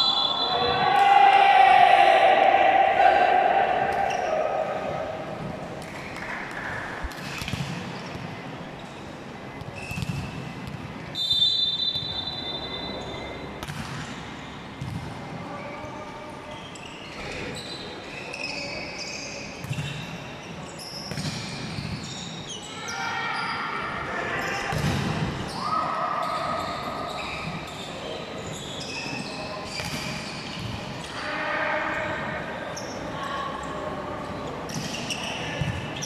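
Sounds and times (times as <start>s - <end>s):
referee's whistle blast: 0.0s - 0.8s, 11.2s - 13.2s
sports shoes squeaking on court: 7.2s - 14.9s, 15.9s - 22.7s, 25.4s - 31.1s, 34.4s - 36.0s.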